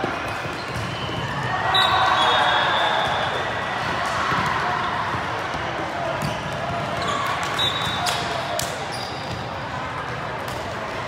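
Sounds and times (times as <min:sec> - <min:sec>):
referee's whistle: 0:00.6 - 0:03.6, 0:07.0 - 0:08.2
volleyballs thudding and bouncing: 0:03.0 - 0:11.0.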